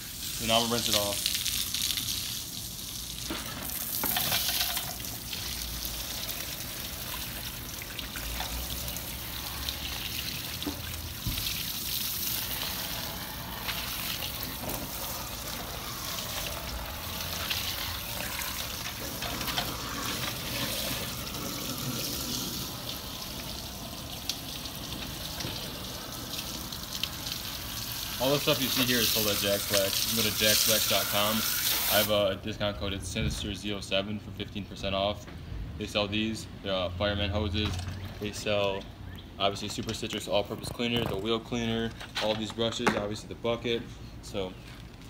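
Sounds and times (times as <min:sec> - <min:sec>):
hose spraying water on wheel: 0:00.0 - 0:32.3.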